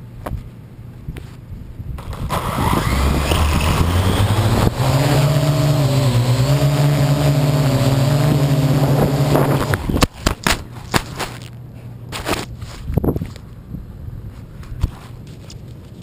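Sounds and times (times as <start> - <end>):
drone rotors humming: 2.0 - 10.0.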